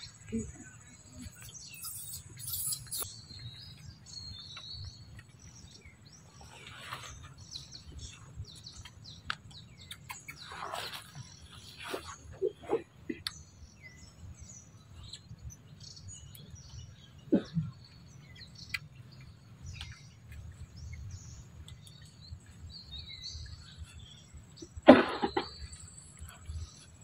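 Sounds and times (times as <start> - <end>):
birds chirping: 0.0 - 27.0.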